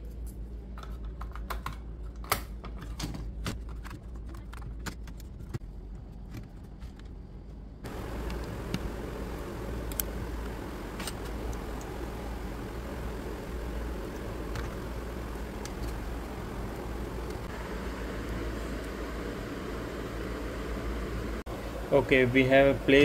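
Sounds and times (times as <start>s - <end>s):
background hiss: 7.8s - 23.0s.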